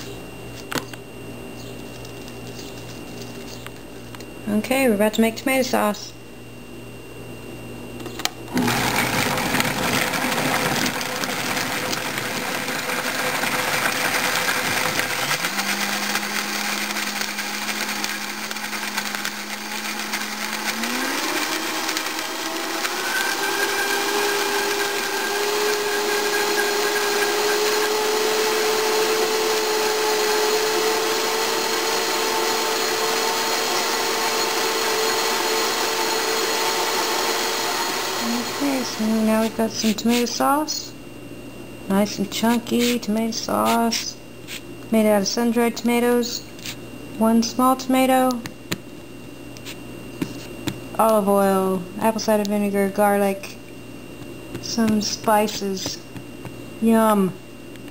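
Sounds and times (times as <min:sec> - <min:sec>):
blender motor whine: 0:08.5 - 0:40.4.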